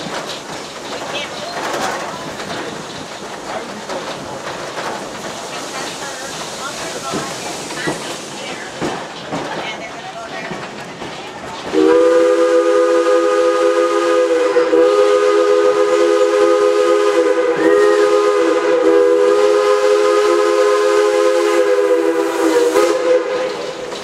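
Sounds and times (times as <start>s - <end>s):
steam locomotive chime whistle: 11.7s - 23.8s.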